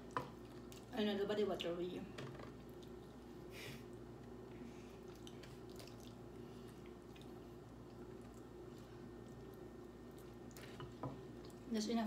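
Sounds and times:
low steady hum: 0.0s - 12.0s
people chewing: 2.6s - 11.7s.

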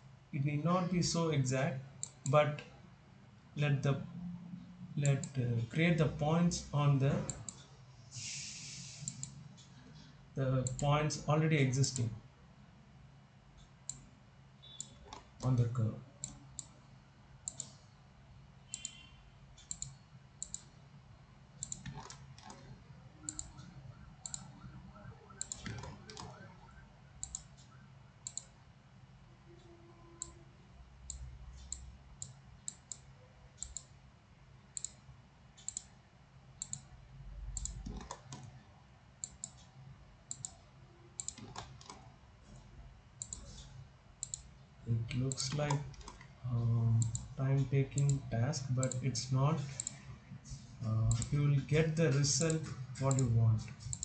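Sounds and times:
faint low hum: 0.0s - 54.0s
computer mouse clicking: 7.2s - 10.9s, 16.2s - 16.8s, 17.4s - 17.9s, 18.7s - 20.8s, 21.6s - 24.7s, 25.3s - 28.6s, 29.6s - 30.4s, 31.0s - 33.9s, 34.8s - 35.0s, 35.6s - 35.9s, 36.6s - 36.9s, 37.5s - 38.6s, 39.2s - 40.6s, 41.2s - 44.6s, 45.2s - 46.3s, 47.0s - 54.0s.

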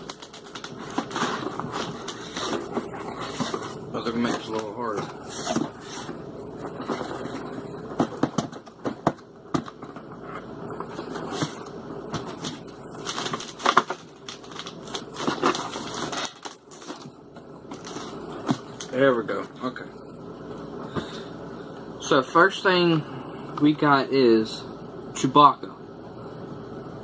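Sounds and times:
cardboard scraping and rustling: 0.0s - 17.1s.

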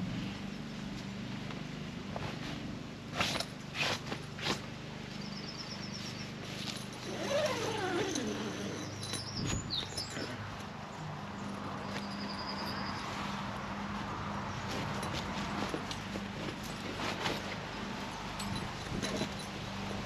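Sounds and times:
birds chirping: 7.5s - 13.0s.

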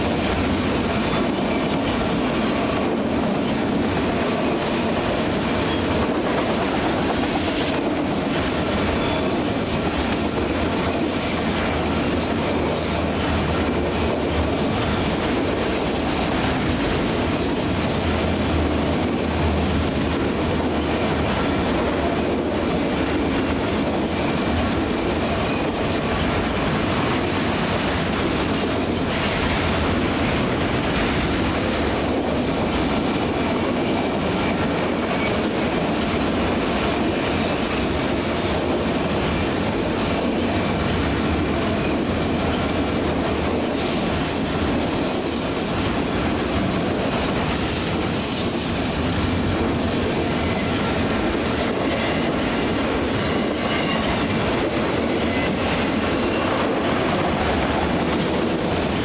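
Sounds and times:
train wheels rumbling on rail: 0.0s - 59.0s
high-pitched wheel squeal: 51.9s - 54.4s.

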